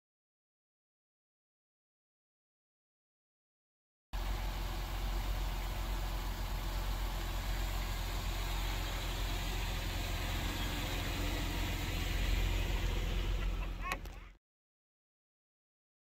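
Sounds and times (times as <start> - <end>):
car engine idling: 4.2 - 14.3.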